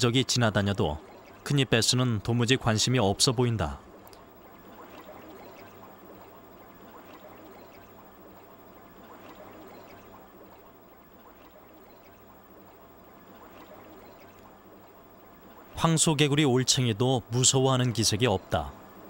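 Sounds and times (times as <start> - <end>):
water trickling in aquarium: 0.0 - 19.0.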